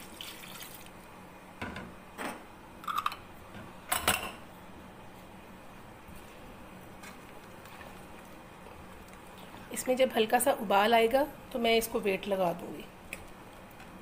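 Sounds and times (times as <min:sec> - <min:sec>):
water pouring into a pot: 0:00.0 - 0:01.0
faint steady hum: 0:00.0 - 0:14.0.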